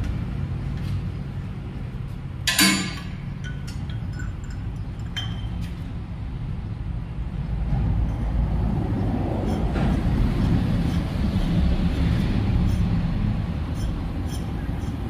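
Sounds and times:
light metallic clinks: 0:02.5 - 0:05.8.

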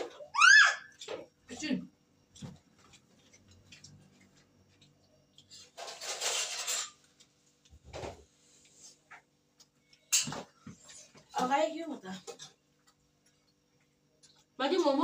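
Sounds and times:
steel plates and spoons clattering: 0:05.8 - 0:07.0.

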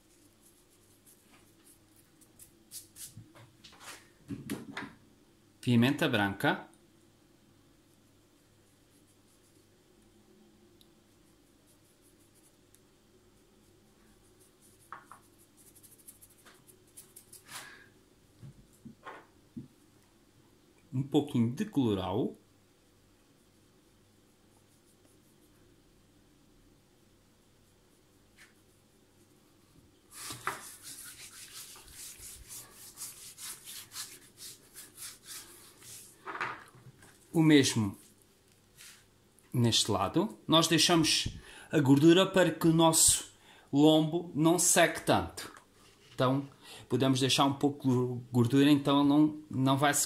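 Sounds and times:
hand rubbing salt into meat: 0:00.0 - 0:04.1, 0:13.3 - 0:17.8, 0:30.1 - 0:36.2
pepper sprinkling rustle: 0:14.4 - 0:17.8.

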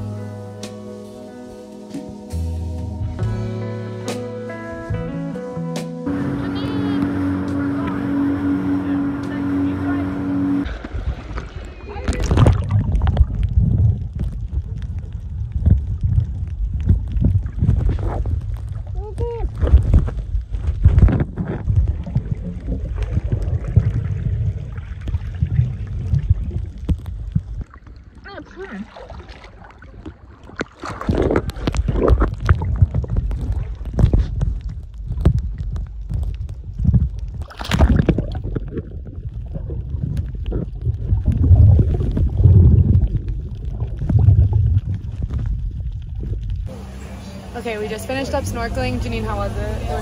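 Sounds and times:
underwater rumble: 0:06.0 - 0:50.0
rush of water: 0:06.1 - 0:50.0
bubbling: 0:09.8 - 0:46.8.

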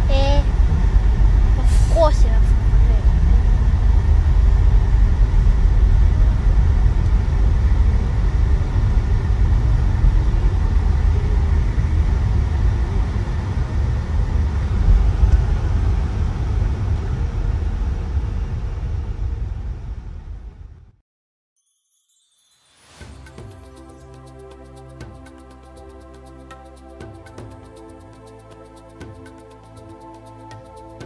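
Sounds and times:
car engine and tyre noise: 0:00.0 - 0:20.9.

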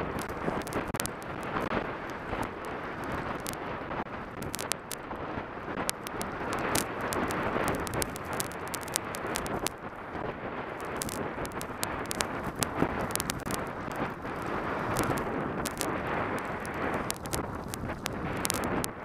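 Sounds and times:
wind on microphone: 0:00.0 - 0:19.0
sharp clicks: 0:00.2 - 0:01.6, 0:04.4 - 0:05.0, 0:05.8 - 0:09.8, 0:10.8 - 0:14.0, 0:14.9 - 0:18.9
skis running through powder snow: 0:10.9 - 0:18.8.

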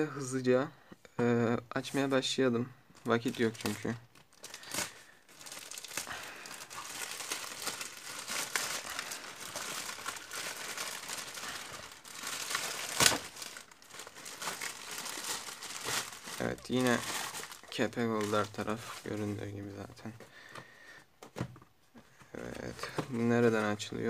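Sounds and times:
plastic bag crinkling: 0:03.0 - 0:19.9
plastic tearing: 0:03.1 - 0:19.2.

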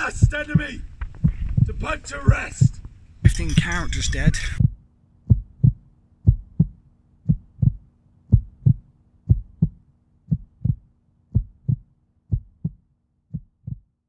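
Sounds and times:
deep double heartbeat: 0:00.0 - 0:02.9, 0:04.6 - 0:14.0.

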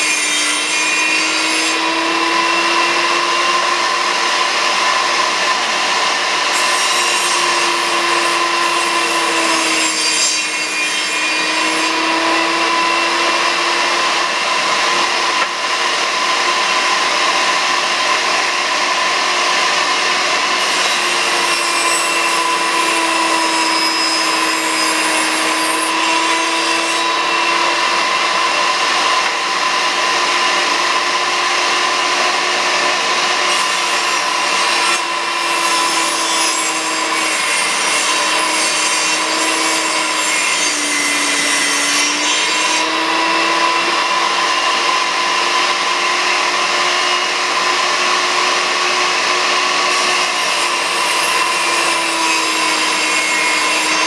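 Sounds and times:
saw cutting wood: 0:00.0 - 0:54.0
table saw motor whine: 0:00.0 - 0:54.0.

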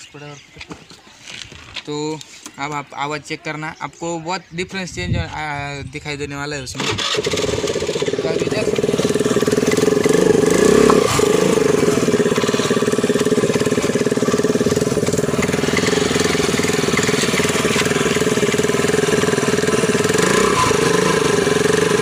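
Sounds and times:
scooter engine idling: 0:06.9 - 0:22.0.

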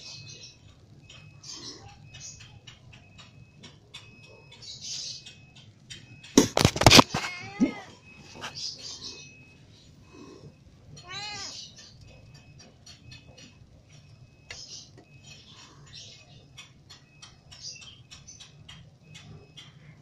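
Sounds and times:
kitten meowing: 0:11.0 - 0:11.6.

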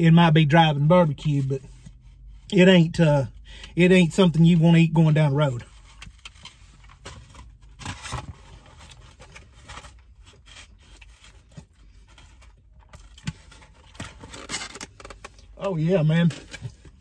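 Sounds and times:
sandwich rustling and scraping: 0:04.3 - 0:17.0.

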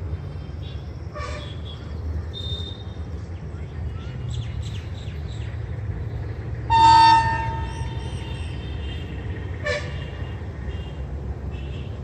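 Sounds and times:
locomotive air horn toot: 0:06.7 - 0:10.4.

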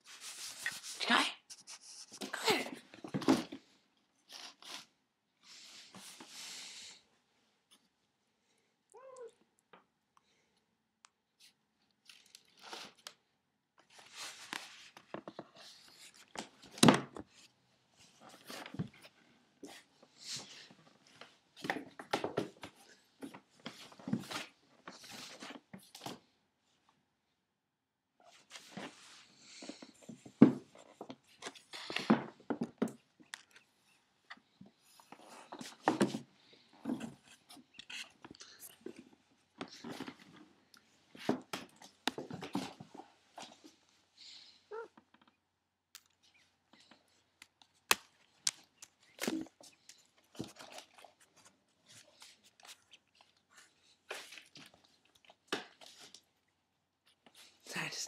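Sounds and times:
cat meowing: 0:08.9 - 0:09.4.

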